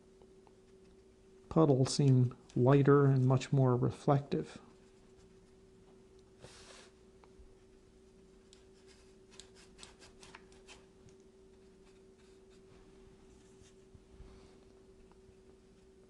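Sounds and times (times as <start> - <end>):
steady low hum: 0.0 - 16.0
brush scratching on paper: 4.7 - 5.7, 7.5 - 10.9.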